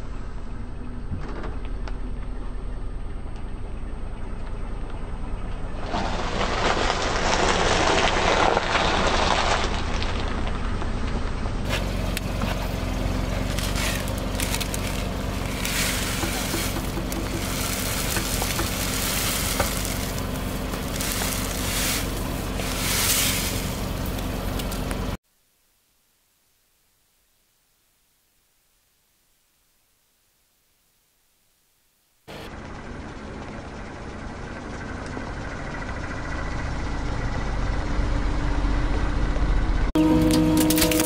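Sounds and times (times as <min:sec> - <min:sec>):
car engine running: 0:10.4 - 0:25.2, 0:32.3 - 0:41.0
noodle bits trickling: 0:12.7 - 0:25.2
tyre crushing dry noodles: 0:13.2 - 0:25.2
plastic wrappers crinkling: 0:13.4 - 0:24.9.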